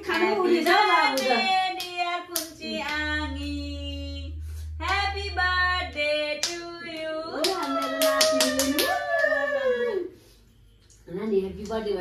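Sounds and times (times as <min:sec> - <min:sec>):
group of voices singing: 0:00.0 - 0:08.9
hand claps: 0:00.6 - 0:03.0, 0:07.3 - 0:09.4.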